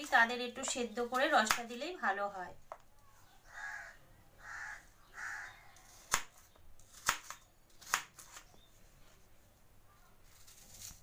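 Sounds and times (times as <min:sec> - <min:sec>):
bird calls: 0:03.0 - 0:06.6.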